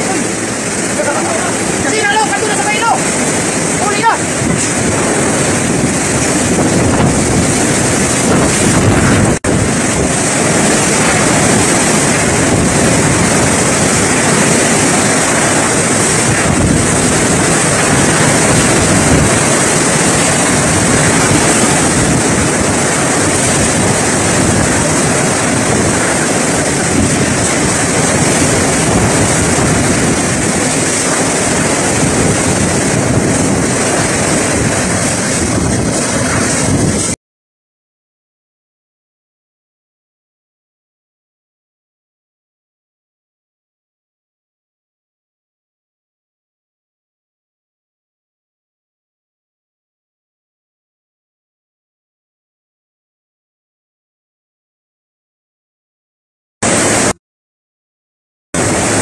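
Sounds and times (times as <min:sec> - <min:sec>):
driving rain: 0:00.0 - 0:37.2, 0:56.6 - 0:57.2, 0:58.6 - 0:59.0
strong wind gusts: 0:00.0 - 0:37.2, 0:56.6 - 0:57.2, 0:58.6 - 0:59.0.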